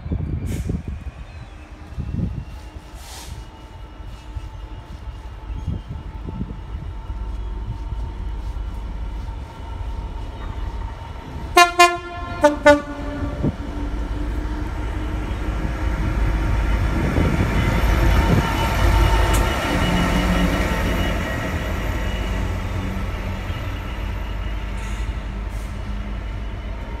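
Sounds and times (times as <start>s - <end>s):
diesel locomotive engine passing: 0.0s - 27.0s
two-tone train horn blasts: 11.5s - 13.9s.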